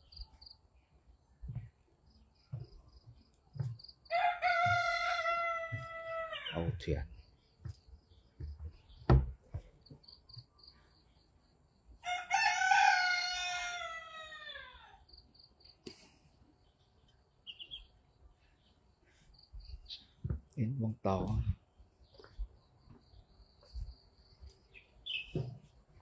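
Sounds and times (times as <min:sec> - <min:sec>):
footsteps on wooden boards: 0:00.9 - 0:06.3, 0:07.5 - 0:10.5, 0:19.5 - 0:20.5, 0:21.2 - 0:26.0
rooster crowing: 0:04.1 - 0:06.6, 0:12.0 - 0:15.0
insect chirping: 0:09.8 - 0:12.1.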